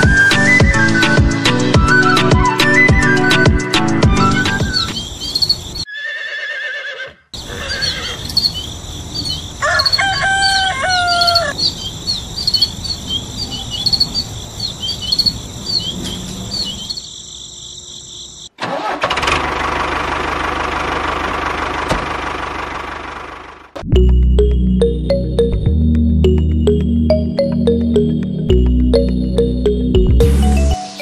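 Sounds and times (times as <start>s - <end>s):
bird chirping: 4.2s - 5.9s, 7.4s - 18.5s
animal call: 4.2s - 17.1s
tractor engine running: 18.6s - 25.7s.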